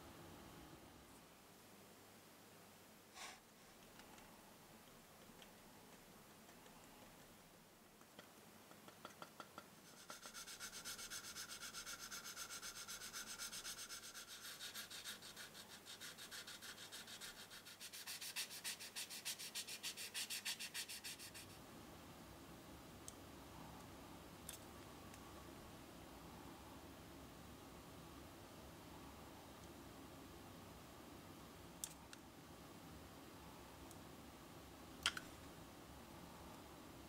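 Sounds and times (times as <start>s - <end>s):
sanding strokes on plastic: 9.8s - 21.6s.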